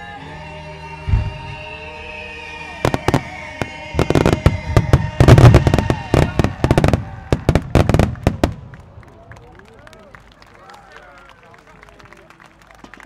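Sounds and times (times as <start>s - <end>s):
music from loudspeakers: 0.0s - 6.9s.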